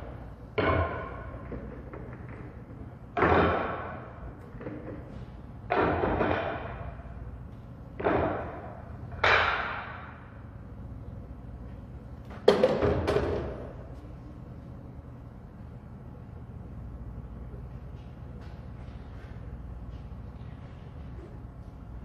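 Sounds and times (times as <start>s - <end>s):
pool balls clacking: 0.0s - 7.1s, 8.0s - 10.4s, 12.3s - 13.9s
sharp knocks: 8.0s - 10.2s.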